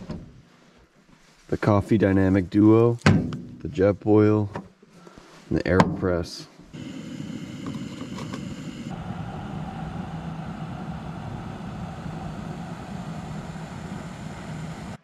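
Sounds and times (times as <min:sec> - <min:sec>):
gas stove hissing: 0:06.7 - 0:15.0.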